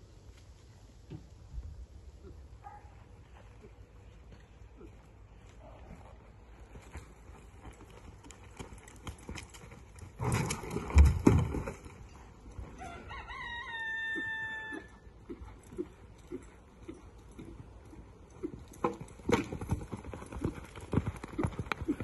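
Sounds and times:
rooster crowing: 0:12.8 - 0:15.0.

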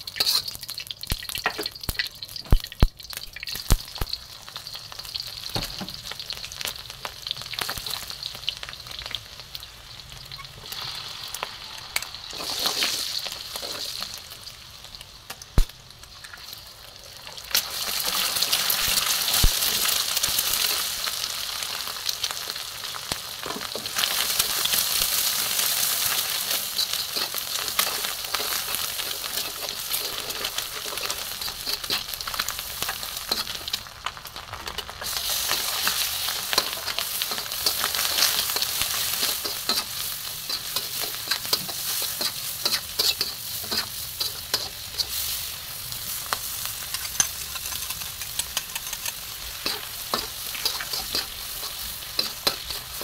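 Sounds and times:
food sizzling in hot oil: 0:00.0 - 0:53.0
metal spatula scraping wok: 0:00.1 - 0:00.6, 0:10.4 - 0:14.0, 0:25.8 - 0:33.8, 0:34.8 - 0:45.6, 0:46.4 - 0:53.0.

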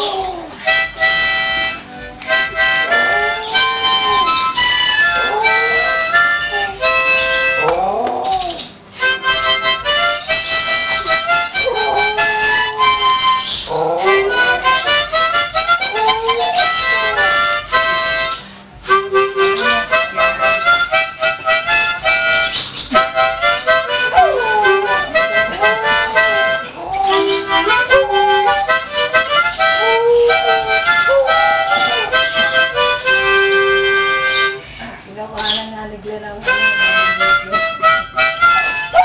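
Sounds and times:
dog howling: 0:00.0 - 0:00.8, 0:02.6 - 0:08.7, 0:11.1 - 0:17.7, 0:23.6 - 0:32.7, 0:38.4 - 0:39.0
harmonica chords: 0:00.0 - 0:39.0.

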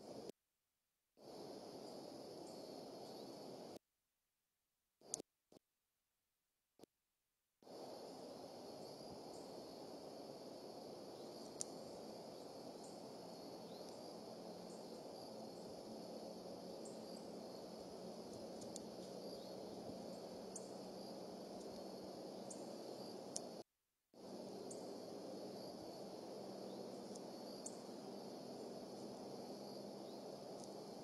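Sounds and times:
outdoor background noise: 0:00.0 - 0:00.3, 0:01.2 - 0:03.8, 0:07.6 - 0:23.6, 0:24.2 - 0:31.0
click: 0:05.0 - 0:05.3, 0:11.4 - 0:11.8, 0:23.3 - 0:23.6, 0:30.6 - 0:30.8.

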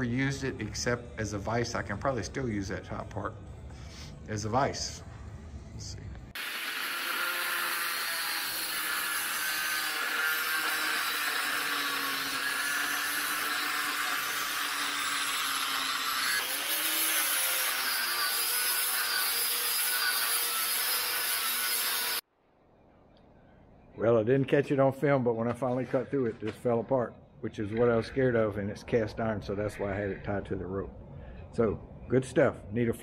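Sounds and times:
angle grinder cutting metal: 0:06.4 - 0:22.2.

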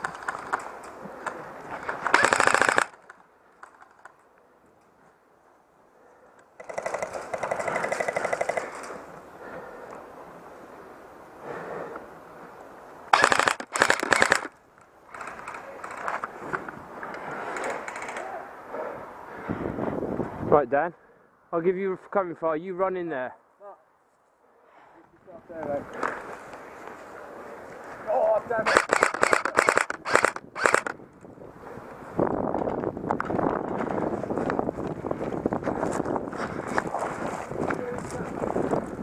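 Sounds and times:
electric rifle firing bursts: 0:02.1 - 0:03.0, 0:13.1 - 0:14.5, 0:28.6 - 0:31.0.

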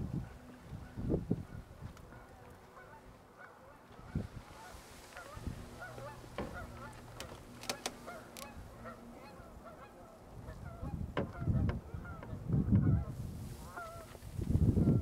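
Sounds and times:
geese honking: 0:00.2 - 0:14.2
low microphone rumble: 0:04.0 - 0:15.0.

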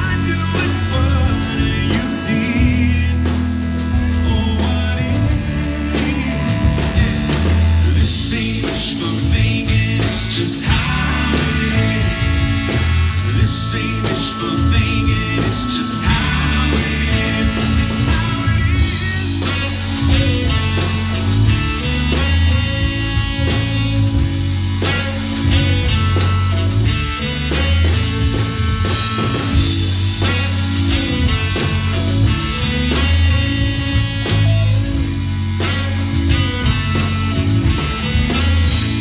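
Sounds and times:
bass guitar: 0:00.0 - 0:39.0
drum kit: 0:00.0 - 0:39.0
electric guitar: 0:00.0 - 0:39.0
man singing: 0:00.0 - 0:39.0.

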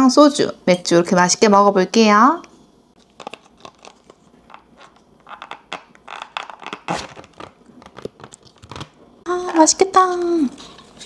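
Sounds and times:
plastic packaging crinkling: 0:03.0 - 0:09.6.

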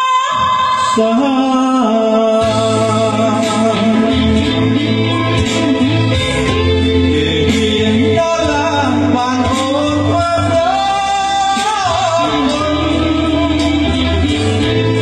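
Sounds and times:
instrumental backing track: 0:00.0 - 0:15.0
man singing into a microphone: 0:00.0 - 0:15.0.

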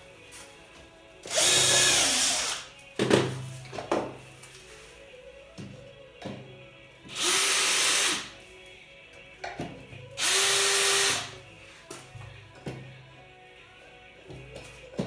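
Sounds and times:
power drill motor whine: 0:01.3 - 0:02.7, 0:07.1 - 0:08.3, 0:10.2 - 0:11.3.

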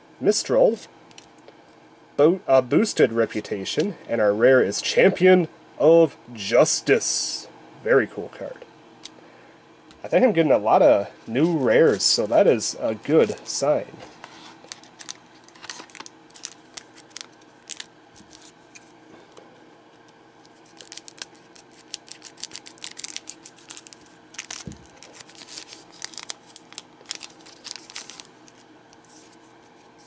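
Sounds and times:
cards being handled: 0:13.1 - 0:19.0, 0:19.9 - 0:30.0
foil wrapper crinkling: 0:14.2 - 0:18.9, 0:20.0 - 0:29.4.

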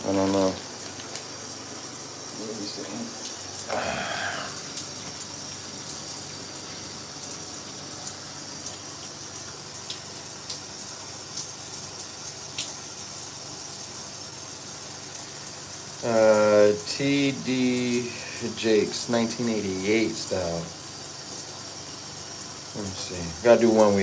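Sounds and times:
shower water spraying: 0:00.0 - 0:24.0.

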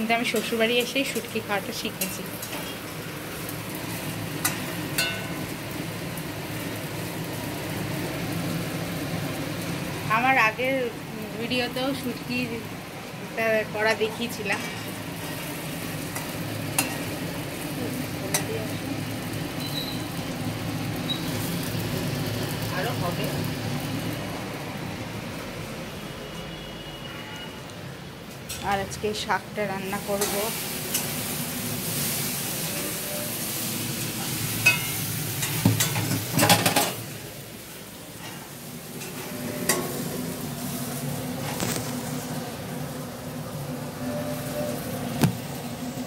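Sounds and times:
fish sizzling in a wok: 0:00.0 - 0:25.6, 0:28.9 - 0:46.0
kitchen utensils and dishes clattering: 0:14.0 - 0:15.0, 0:34.5 - 0:37.1.

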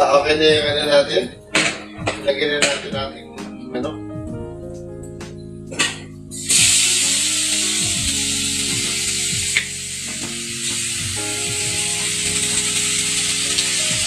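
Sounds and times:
background music: 0:00.0 - 0:14.0
chicken sizzling in a pot: 0:06.3 - 0:14.0.

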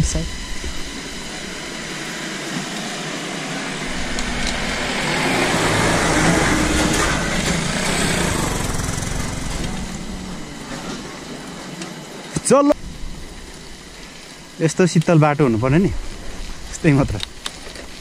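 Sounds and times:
road noise: 0:00.0 - 0:14.8
vehicle engine passing: 0:03.3 - 0:11.4.

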